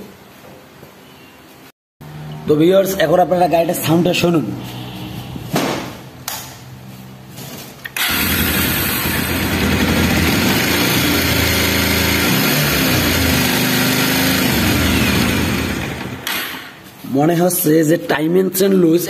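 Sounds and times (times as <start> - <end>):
motorcycle engine rattling: 8.0 - 16.6.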